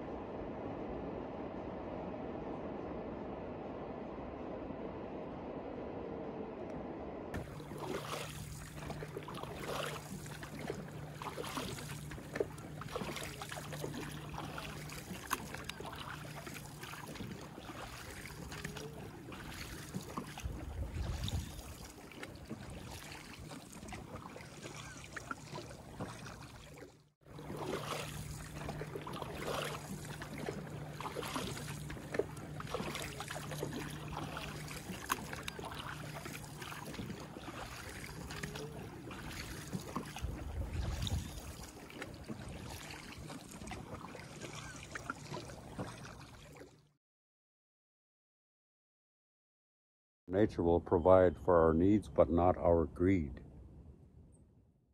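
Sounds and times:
low rumble: 0:00.0 - 0:09.5
steady low hum: 0:00.0 - 0:26.6, 0:27.3 - 0:45.6
water splashing around canoe: 0:07.4 - 0:46.9.

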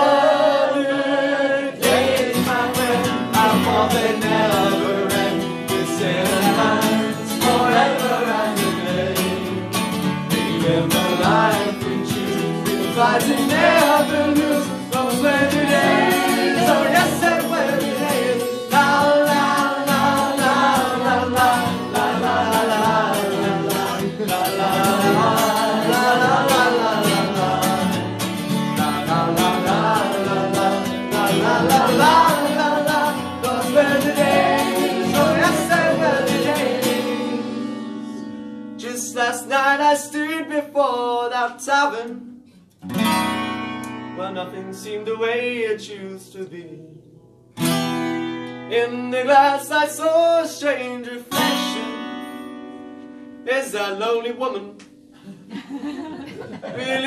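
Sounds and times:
man singing: 0:00.0 - 0:37.8, 0:38.8 - 0:42.5, 0:44.2 - 0:47.2, 0:48.7 - 0:52.5, 0:53.4 - 0:54.8
acoustic guitar strumming: 0:00.0 - 0:55.3.

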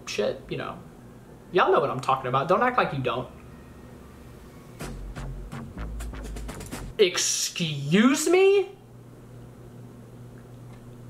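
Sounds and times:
sharp drum hits: 0:04.8 - 0:07.0.

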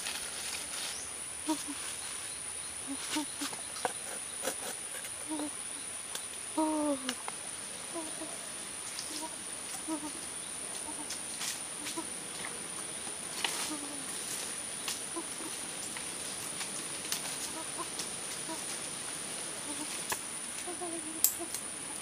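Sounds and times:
dry leaves and sticks rustling: 0:00.0 - 0:03.8, 0:10.8 - 0:19.0
faint animal calls: 0:01.4 - 0:01.9, 0:02.8 - 0:05.6, 0:07.9 - 0:08.4, 0:10.8 - 0:11.2, 0:15.1 - 0:15.6, 0:17.4 - 0:18.7, 0:19.6 - 0:20.0
high-pitched insect drone: 0:20.6 - 0:22.0.

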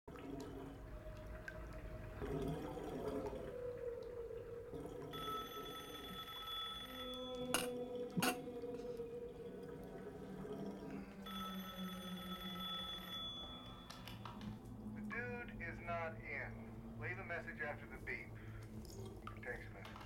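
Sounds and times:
water: 0:00.0 - 0:20.0
telephone ringing: 0:05.1 - 0:07.8, 0:11.2 - 0:14.4.

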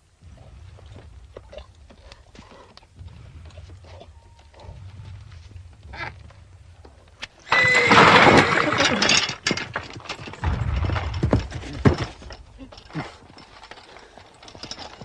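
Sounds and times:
heavy low thumps: 0:00.0 - 0:07.2, 0:10.4 - 0:12.9
horse whinnying: 0:07.4 - 0:09.1.

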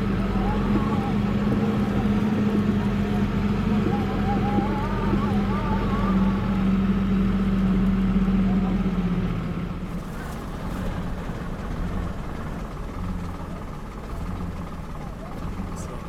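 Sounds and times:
vehicle engine and road rumble: 0:00.0 - 0:16.0.

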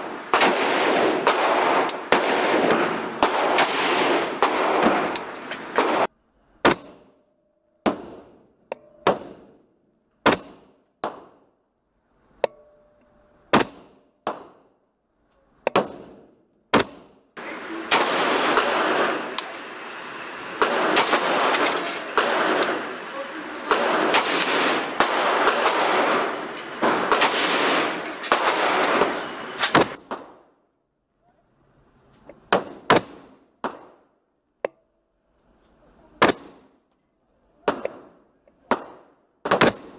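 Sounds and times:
rifle shots echoing indoors: 0:00.2 - 0:06.1, 0:17.9 - 0:19.3, 0:20.6 - 0:23.0, 0:23.6 - 0:30.3.

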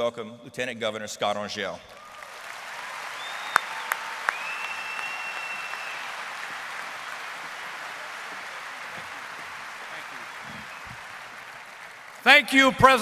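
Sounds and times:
crowd applauding: 0:01.9 - 0:13.0
shrill whistle: 0:03.2 - 0:06.3.

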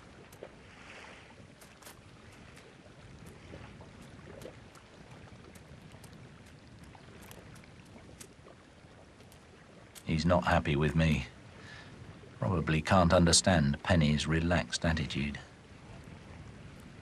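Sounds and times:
faint ticks: 0:00.0 - 0:00.6, 0:01.4 - 0:08.5, 0:09.2 - 0:10.2
outdoor background hiss: 0:06.9 - 0:17.0.

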